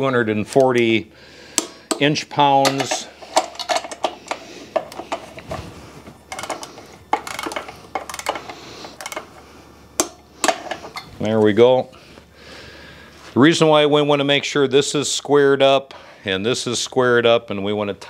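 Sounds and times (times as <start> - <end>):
torque wrench clicking: 6.3 - 9.4.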